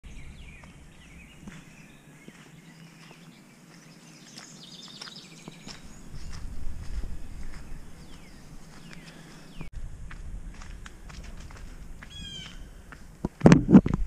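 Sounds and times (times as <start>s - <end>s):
songbirds chirping and whistling: 0.0s - 9.7s, 12.0s - 13.0s
footsteps on grass and gravel: 0.4s - 14.0s
low rumble: 6.0s - 8.7s, 9.7s - 12.8s.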